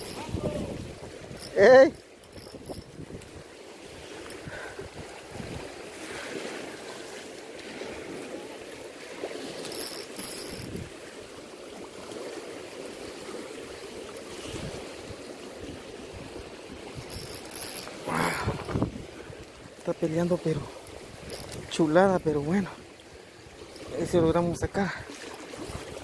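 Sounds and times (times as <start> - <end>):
turbulent water rushing: 0.0 - 26.0
high-pitched clicks: 1.3 - 2.9, 17.1 - 18.0.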